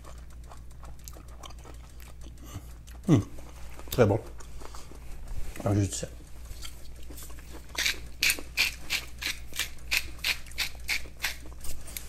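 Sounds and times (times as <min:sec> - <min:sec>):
spice mill grinding: 0:05.7 - 0:12.0.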